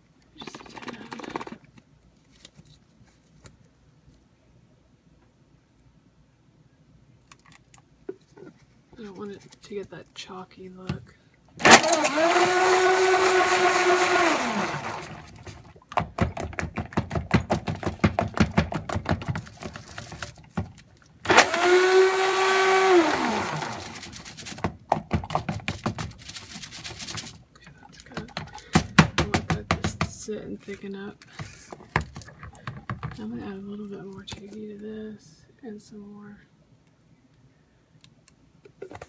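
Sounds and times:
stick blender motor whirring: 11.6 - 15.6, 21.3 - 24.4.

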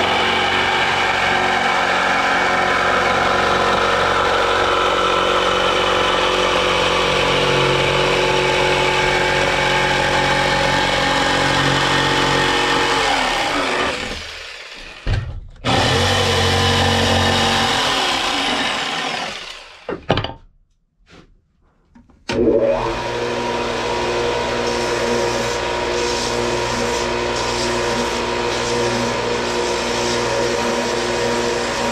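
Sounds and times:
disc sander motor running: 0.0 - 15.1, 15.7 - 19.9
jigsaw sawing wood: 0.0 - 20.0, 22.3 - 31.9.

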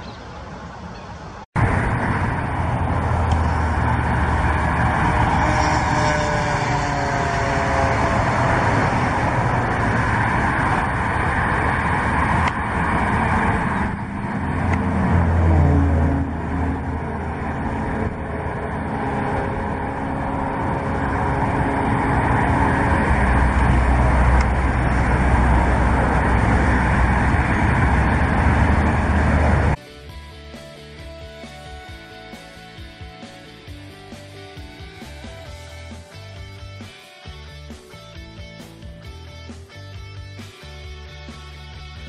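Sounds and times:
vehicle engine rumbling: 0.0 - 29.8.

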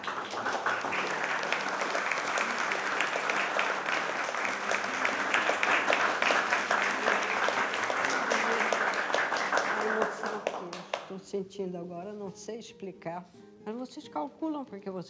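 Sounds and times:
people applauding: 0.0 - 11.1.

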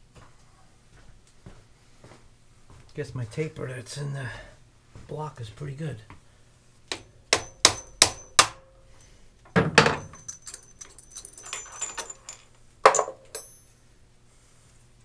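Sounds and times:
metallic knocks on tool holder: 6.9 - 8.6
metal parts rattling: 9.8 - 13.6.

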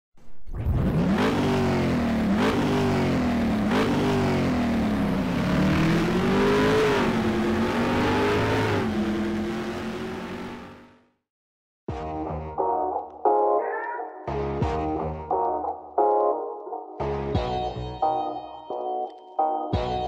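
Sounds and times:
car engine accelerating hard: 0.6 - 11.2.

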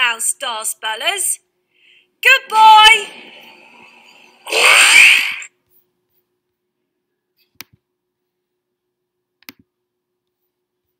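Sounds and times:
cartoon whoosh: 3.0 - 5.5
mouse click: 9.4 - 9.7.

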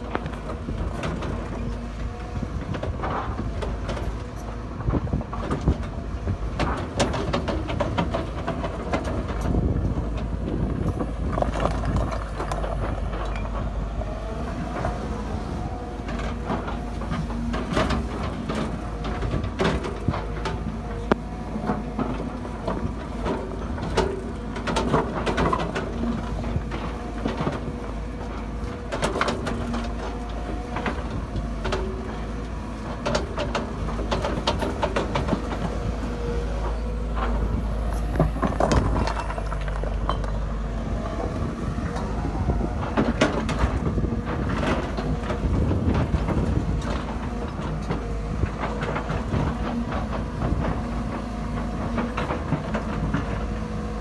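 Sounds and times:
diesel engine running: 0.0 - 54.0
rocks knocking on steel bucket: 11.1 - 13.0.

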